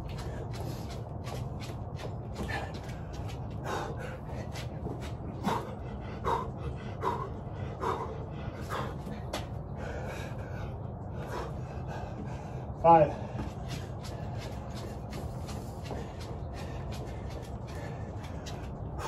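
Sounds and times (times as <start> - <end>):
man breathing hard: 2.3 - 19.0
hands and feet on floor: 13.3 - 18.7.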